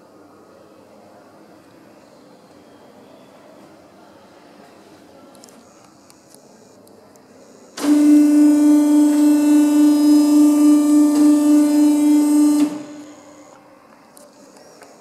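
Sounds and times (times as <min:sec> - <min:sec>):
electric buzzer tone: 0:07.8 - 0:13.6.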